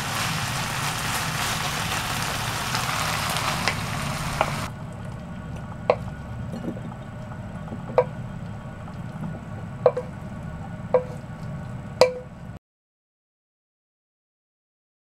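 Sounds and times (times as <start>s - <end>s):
wooden spatula knocking frying pan: 7.8s - 8.2s, 9.8s - 10.1s, 10.9s - 11.2s, 12.0s - 12.3s.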